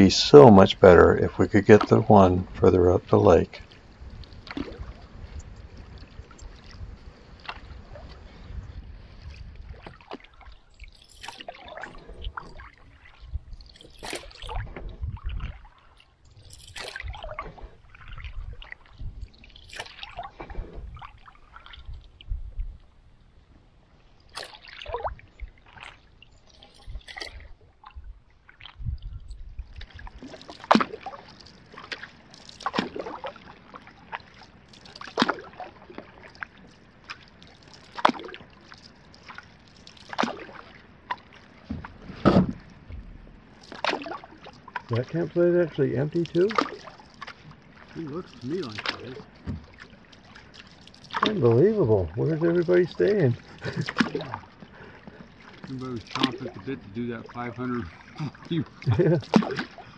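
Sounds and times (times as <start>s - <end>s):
water dripping: 0.0s - 8.2s, 9.5s - 22.4s, 24.2s - 59.9s
paddles splashing in water: 0.0s - 59.9s.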